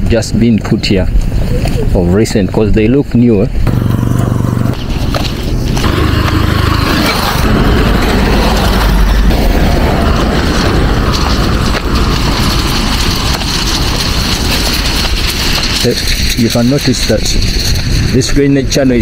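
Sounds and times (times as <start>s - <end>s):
motorcycle engine: 3.6s - 18.3s
pickup truck passing: 3.7s - 16.4s.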